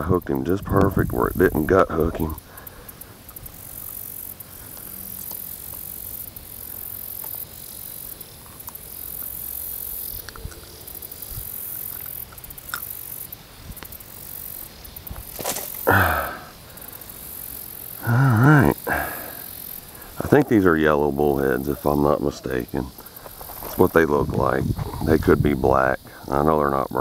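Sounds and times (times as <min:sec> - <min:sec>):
high hiss: 0:00.0 - 0:27.0.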